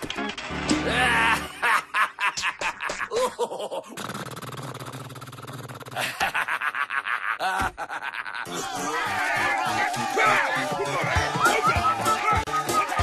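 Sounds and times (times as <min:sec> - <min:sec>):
snickering laughter: 0:01.2 - 0:04.1, 0:05.8 - 0:08.6.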